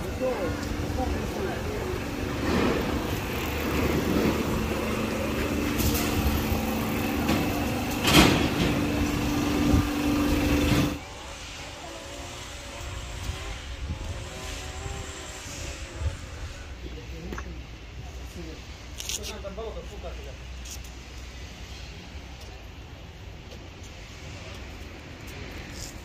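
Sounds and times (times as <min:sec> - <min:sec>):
low motor hum: 0:00.0 - 0:17.2.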